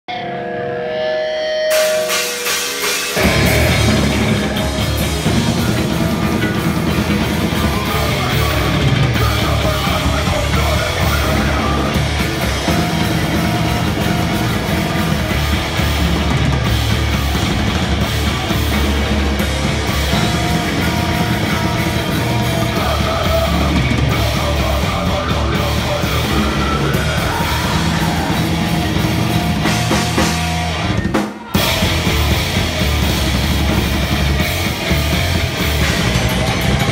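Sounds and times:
distorted electric guitars: 0.0s - 36.9s
heavy rock band playing: 0.1s - 36.9s
drum kit pounding: 1.7s - 36.9s.

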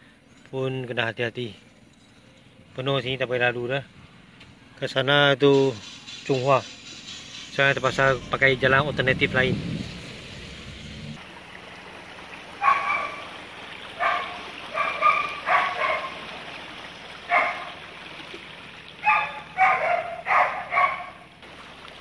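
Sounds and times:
dog barking: 12.6s - 13.2s, 14.0s - 16.2s, 17.3s - 17.8s, 19.0s - 21.2s.

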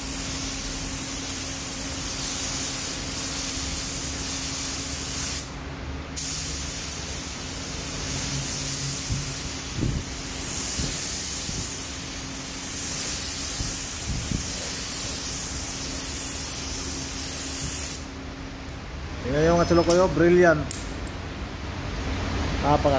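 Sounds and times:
paint spray gun hissing: 0.0s - 5.5s, 6.2s - 18.1s.

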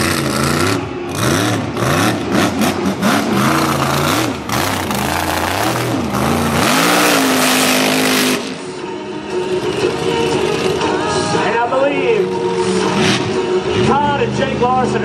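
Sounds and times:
mud tires spinning: 0.0s - 8.7s
truck engine revving: 0.0s - 11.1s, 12.4s - 14.4s.

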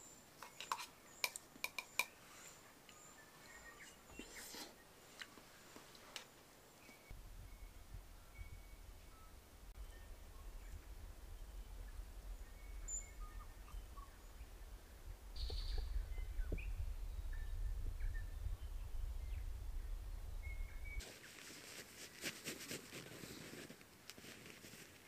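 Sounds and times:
faint bird chirps: 0.0s - 5.8s, 6.7s - 21.2s
steady low rumble: 7.1s - 21.0s
fabric rustling and crinkling: 21.0s - 25.0s.

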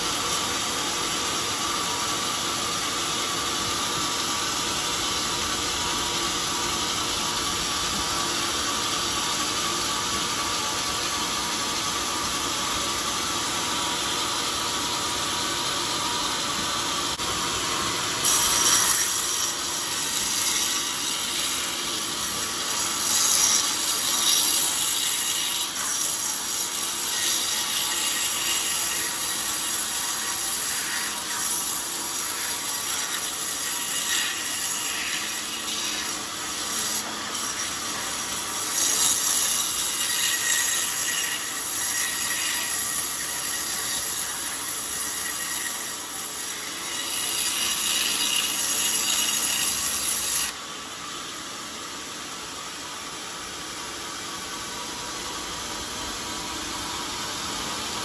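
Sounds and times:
saw machinery running: 0.0s - 58.0s
saw blade rasping through wood: 16.2s - 50.6s.

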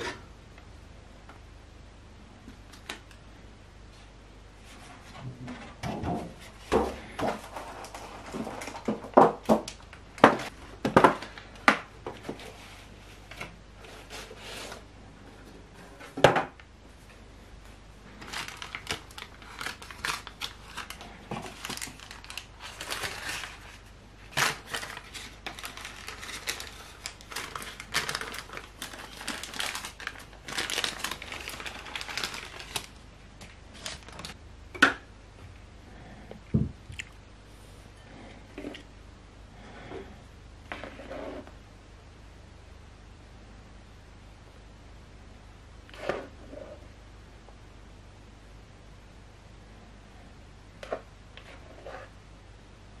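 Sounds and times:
baking paper crinkling: 6.4s - 14.9s, 18.0s - 34.4s.

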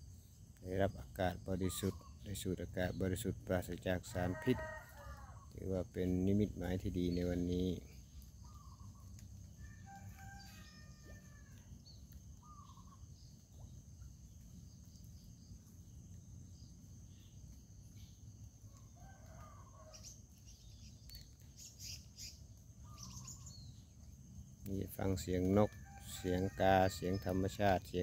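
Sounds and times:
low outdoor background: 0.0s - 28.0s
bird calls: 0.8s - 15.7s, 16.5s - 24.0s
rooster crowing faintly: 4.0s - 5.6s.

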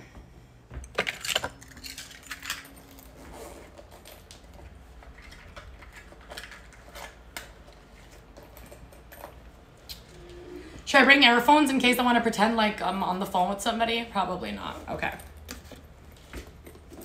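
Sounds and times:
metal buckle and zipper clinking: 1.1s - 4.6s, 8.0s - 9.6s.

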